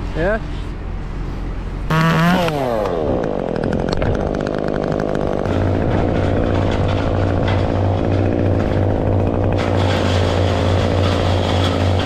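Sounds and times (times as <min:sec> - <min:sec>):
deep steady engine hum: 0:00.0 - 0:12.0
chainsaw idling: 0:01.9 - 0:12.0.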